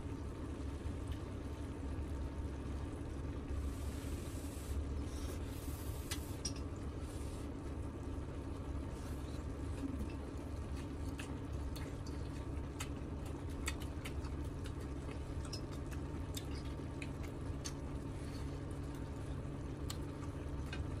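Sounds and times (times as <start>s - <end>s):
steady low hum: 0.0s - 21.0s
wet chewing and slurping: 9.1s - 17.8s.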